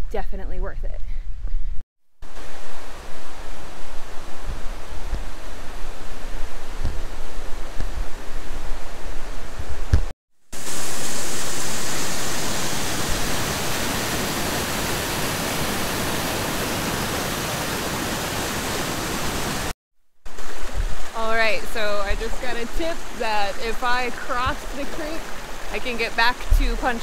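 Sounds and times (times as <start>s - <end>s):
creek and waterfall rushing: 10.6s - 19.7s, 20.3s - 27.0s.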